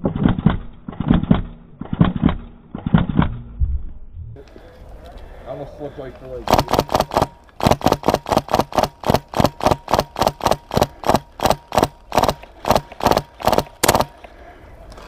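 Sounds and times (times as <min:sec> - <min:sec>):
airsoft gun rapid shots: 0:06.4 - 0:14.3.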